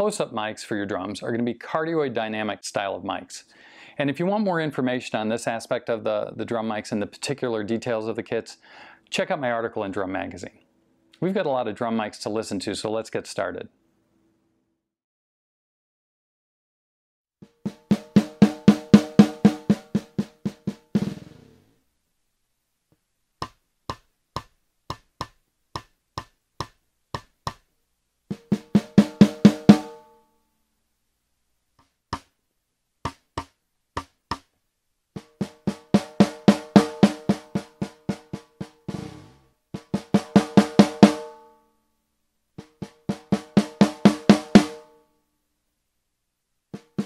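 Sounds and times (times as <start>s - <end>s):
snare drum strokes: 17.4s - 21.5s, 28.3s - 30.0s, 35.2s - 41.4s, 42.6s - 44.8s, 46.8s - 47.0s.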